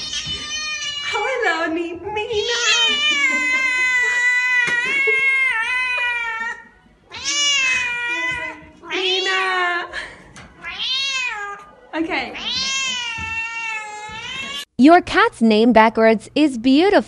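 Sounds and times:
cat meowing: 0.0s - 1.3s, 2.3s - 9.6s, 10.6s - 14.7s.

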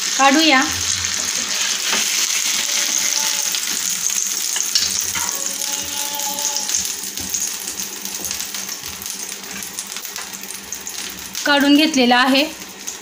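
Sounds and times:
hot oil sizzling in a frying pan: 0.0s - 13.0s
spatulas scraping a pan: 1.0s - 6.8s.

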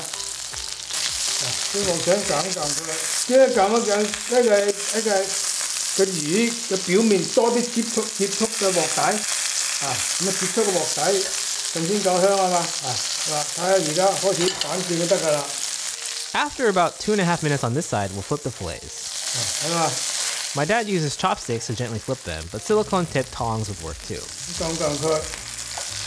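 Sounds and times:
fish sizzling in oil: 0.0s - 26.0s.

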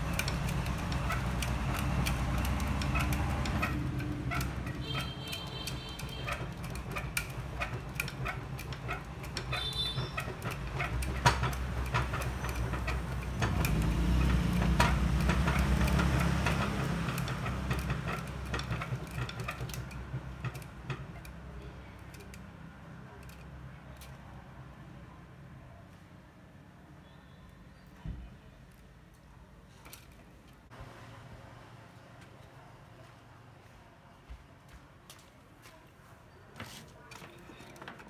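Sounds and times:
coil winding machine spinning: 0.0s - 24.2s.

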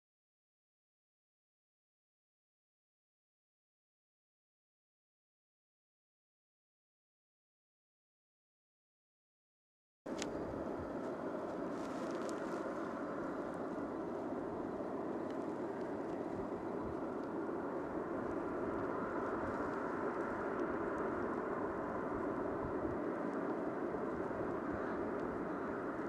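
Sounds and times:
aircraft engines rushing: 10.1s - 26.0s.

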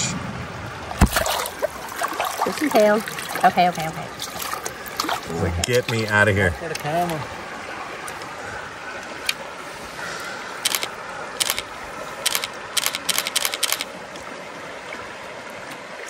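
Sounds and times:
stream water flowing: 0.2s - 16.0s
short sharp clicks: 12.3s - 13.9s.

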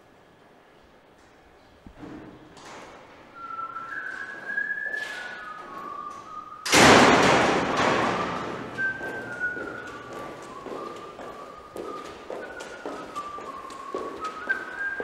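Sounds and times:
person whistling a tune: 3.4s - 6.7s, 7.8s - 15.0s
metal gate door banging: 6.6s - 9.5s.

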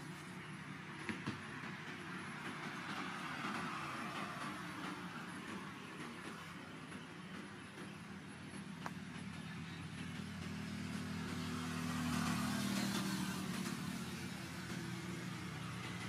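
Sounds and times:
road noise: 0.0s - 16.0s
vehicle engine passing by: 9.8s - 16.0s.

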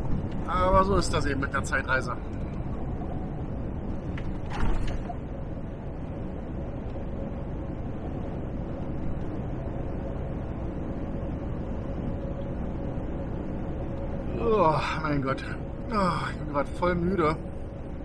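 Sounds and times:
faint steady whine: 0.0s - 18.0s
truck engine and tyre drone: 0.0s - 18.0s.

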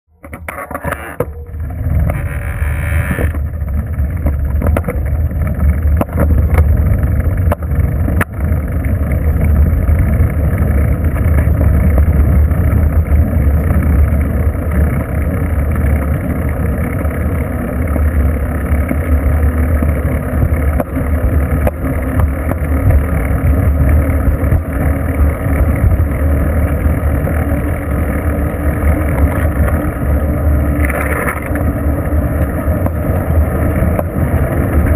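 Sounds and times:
tyre and road noise: 0.1s - 34.9s.

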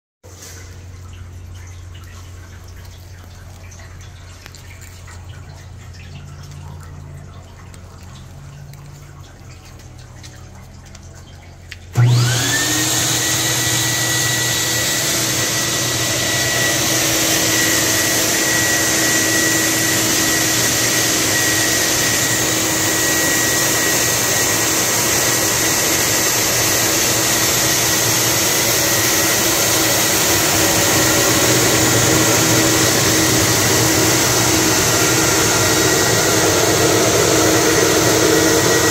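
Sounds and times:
low steady hum: 0.4s - 12.1s
cleaning machine running: 7.4s - 38.9s.

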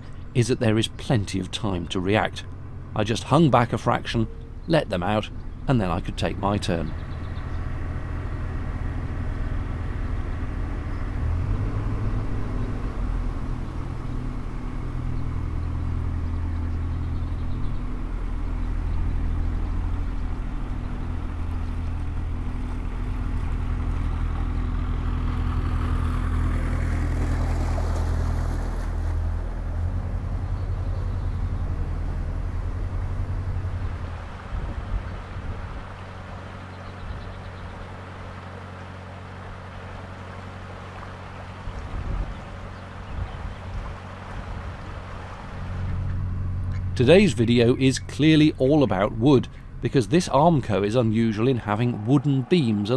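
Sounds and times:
diesel engine humming: 0.0s - 52.9s.

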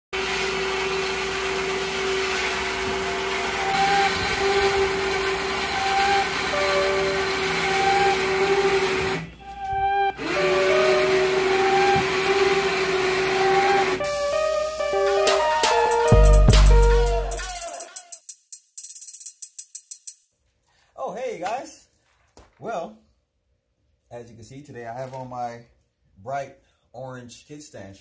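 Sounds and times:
small electric motor whining: 0.2s - 18.0s
music: 3.5s - 20.2s.

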